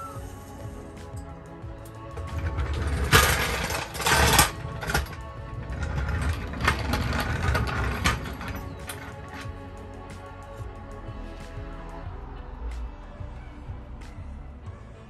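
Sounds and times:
background music: 0.0s - 15.0s
floor jack rattling on concrete: 2.2s - 9.5s.

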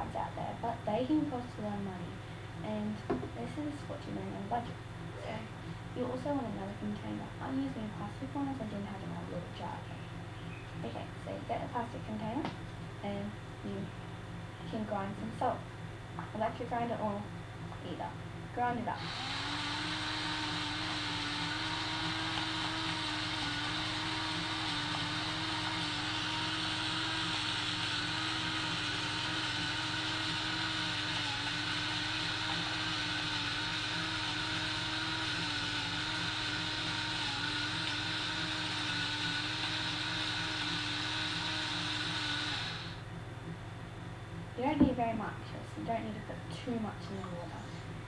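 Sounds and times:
electric salt grinder grinding: 18.7s - 43.0s.

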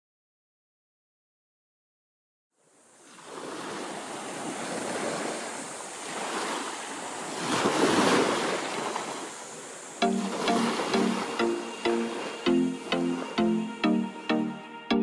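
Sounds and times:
waves washing onto beach: 2.6s - 14.3s
music with plucked notes: 10.0s - 15.0s.

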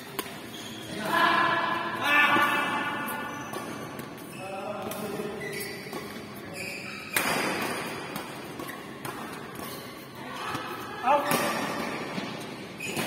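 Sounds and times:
rackets hitting shuttlecock: 7.0s - 13.0s.

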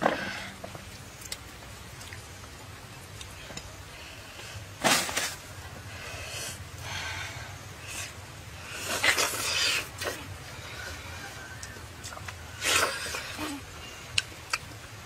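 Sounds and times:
person chewing: 2.0s - 2.2s.

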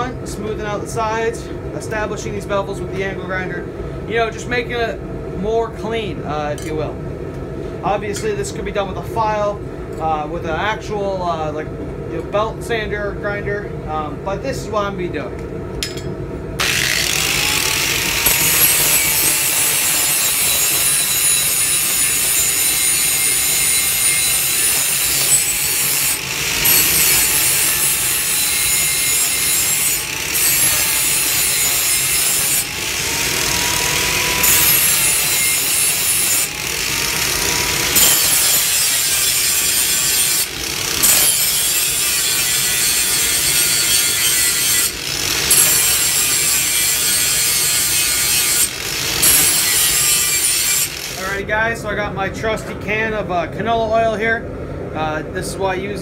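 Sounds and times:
angle grinder grinding steel: 15.8s - 51.4s.

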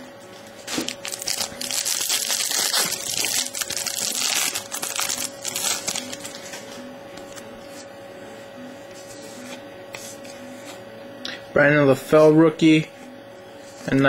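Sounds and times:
foil wrapper crinkling: 0.6s - 6.6s
soft handling of cards: 4.0s - 7.9s.

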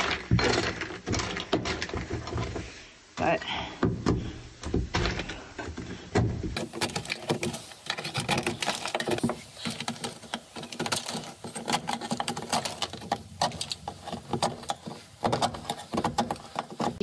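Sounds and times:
scraper chipping and scraping metal: 6.5s - 17.0s.

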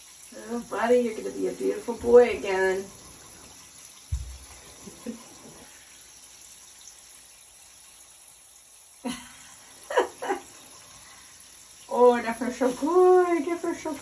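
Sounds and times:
dull bump: 4.1s - 4.5s
hands lathering wet fur: 11.9s - 14.0s.

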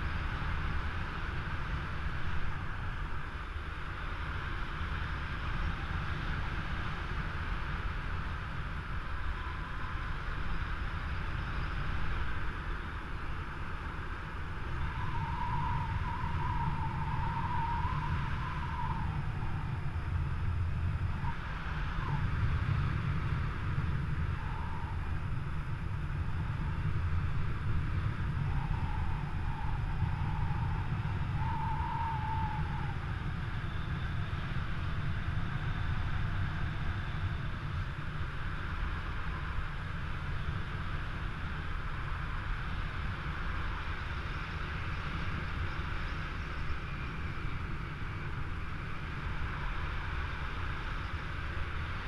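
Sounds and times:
wind rushing over microphone: 0.0s - 52.0s
faint wavering whistle: 9.0s - 13.0s, 14.3s - 22.8s, 24.1s - 25.4s, 28.2s - 37.9s.

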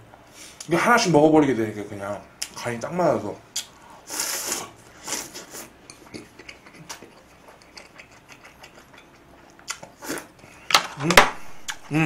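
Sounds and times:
person sipping and chewing: 4.1s - 10.4s.

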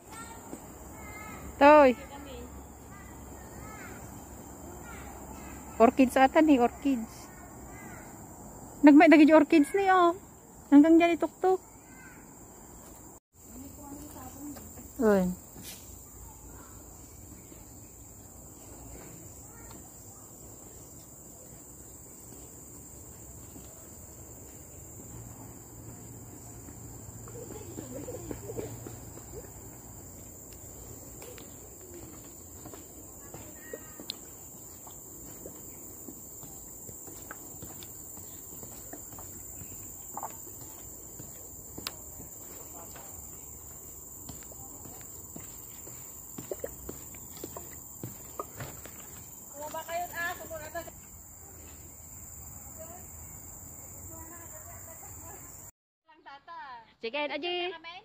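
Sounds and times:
insects droning: 0.0s - 58.0s
footsteps on steel grating: 22.2s - 51.9s.

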